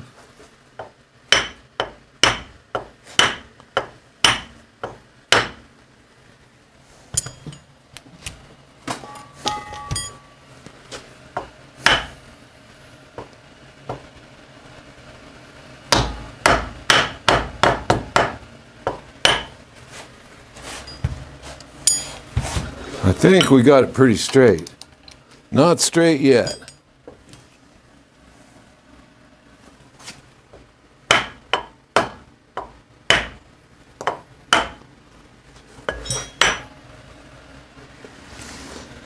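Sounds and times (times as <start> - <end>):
hammer tapping metal hub: 0.8 - 5.6, 9.0 - 10.2, 31.1 - 33.4, 34.0 - 34.8, 35.9 - 36.7
metallic ringing: 7.2 - 7.7, 9.0 - 10.4, 20.8 - 21.2, 21.8 - 22.2, 26.4 - 26.9, 35.9 - 36.8.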